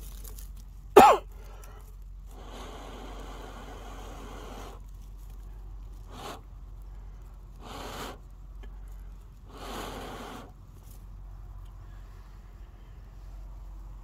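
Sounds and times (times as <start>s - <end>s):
person blowing hard on embers: 2.3s - 4.9s, 6.0s - 6.6s, 7.5s - 8.4s, 9.4s - 10.6s.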